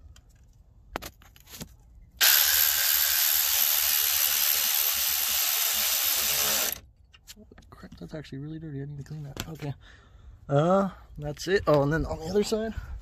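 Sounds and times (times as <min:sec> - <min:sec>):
power ratchet running: 0:02.2 - 0:06.8.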